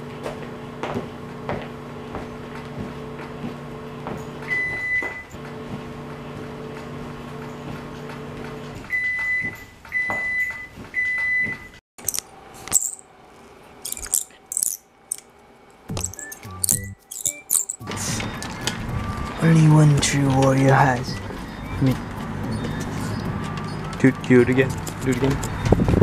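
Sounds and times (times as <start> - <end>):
short high electronic beeps: 16.0 - 17.9.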